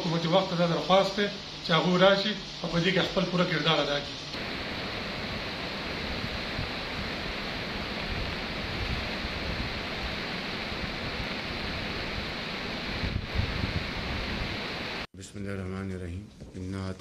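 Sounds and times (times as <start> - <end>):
river rushing: 4.4 - 15.1.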